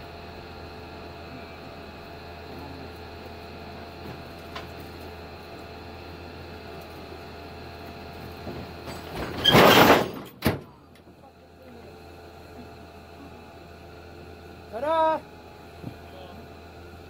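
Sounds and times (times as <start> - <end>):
truck dropping bang: 8.5 - 10.8.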